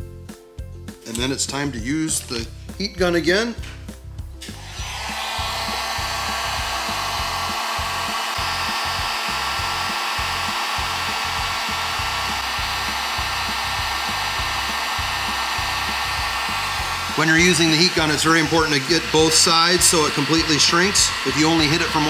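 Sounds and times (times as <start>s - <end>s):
heat gun blowing: 4.4s - 22.0s.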